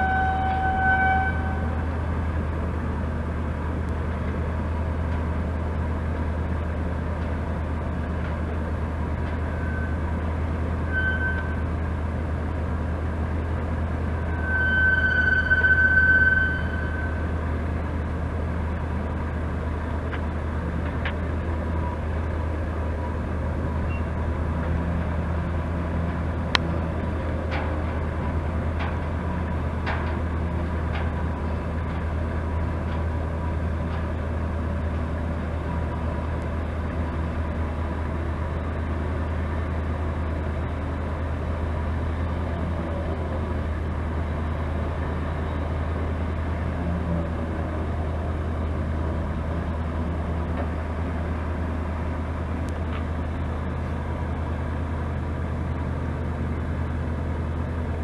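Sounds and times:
crane engine idling: 0:00.0 - 0:58.0
high tone: 0:14.2 - 0:17.4.

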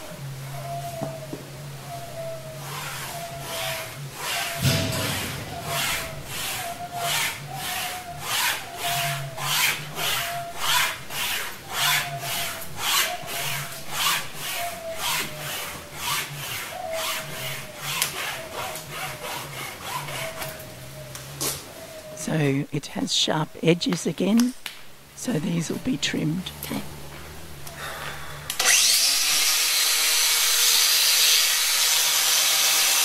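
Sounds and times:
wire saw rasping through horn: 0:02.5 - 0:20.6, 0:28.5 - 0:33.0.

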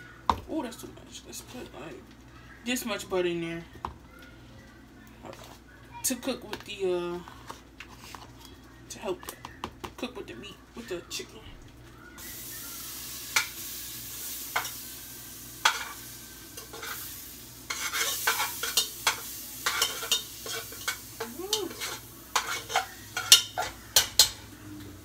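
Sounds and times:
butter sizzling in a pot: 0:00.0 - 0:25.0
spoon tapping against a pot: 0:18.6 - 0:24.4.

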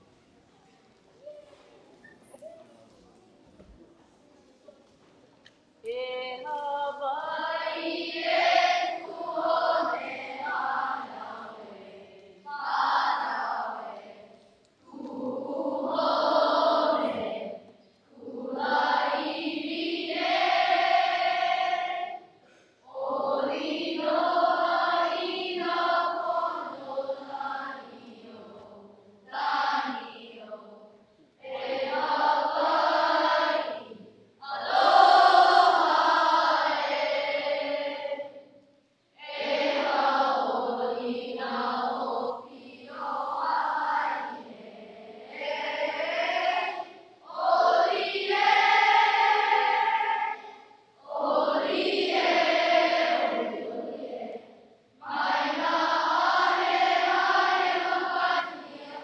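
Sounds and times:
children's choir singing: 0:05.8 - 0:59.0.

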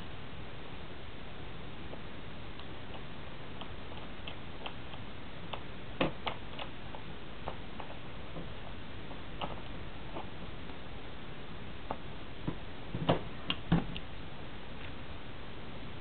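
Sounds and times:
steady hiss: 0:00.0 - 0:16.0
small clicks and ticks: 0:01.9 - 0:10.8.

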